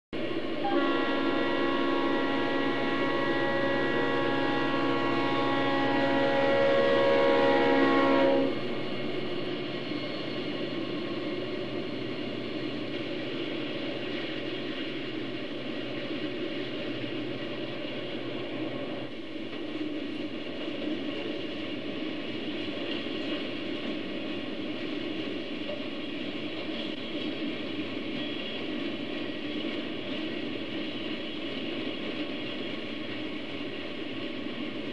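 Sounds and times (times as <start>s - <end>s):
model train rumbling past: 0.2s - 34.9s
locomotive horn chord: 0.6s - 8.7s.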